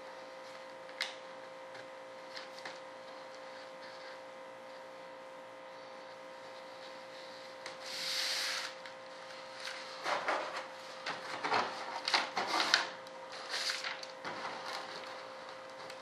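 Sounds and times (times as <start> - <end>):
steady hum: 0.0 - 16.0
paper rubbing and rustling: 9.6 - 16.0
paper crinkling: 11.4 - 16.0.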